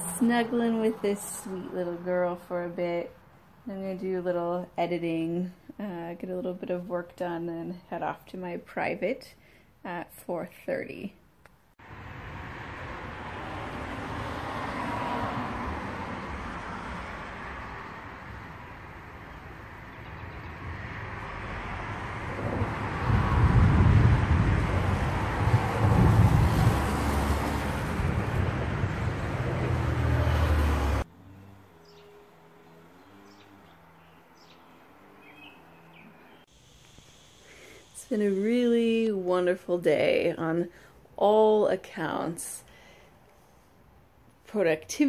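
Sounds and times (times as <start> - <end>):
gusty wind on microphone: 20.2 - 31.0.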